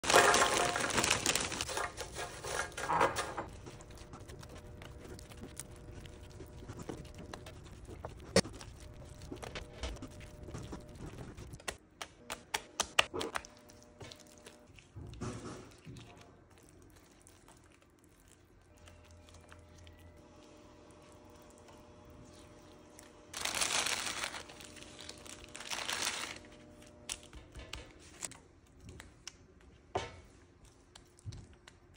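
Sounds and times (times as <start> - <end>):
snack bag crinkling: 0.0 - 2.9, 23.4 - 26.5
snack puffs pouring into pan: 0.0 - 3.2.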